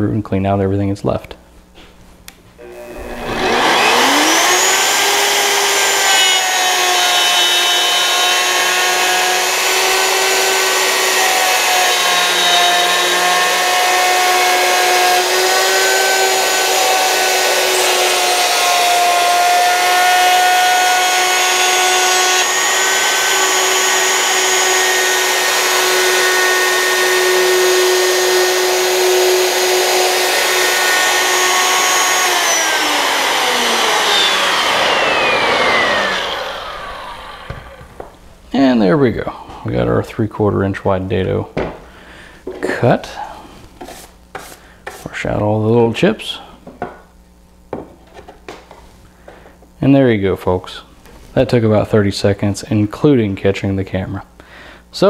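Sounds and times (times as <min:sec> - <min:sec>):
wood router whining: 0:02.6 - 0:38.4.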